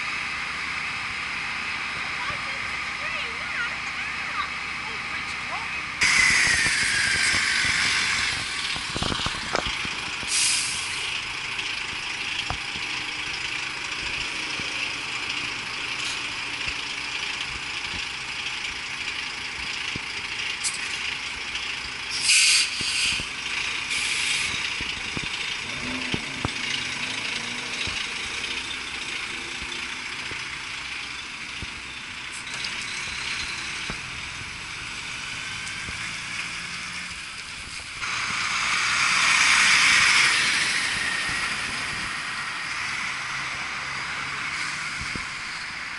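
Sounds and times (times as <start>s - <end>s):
road traffic noise: 0.0s - 45.9s
air-brake hisses: 6.0s - 8.4s, 10.3s - 11.0s, 22.1s - 23.3s, 23.9s - 24.7s.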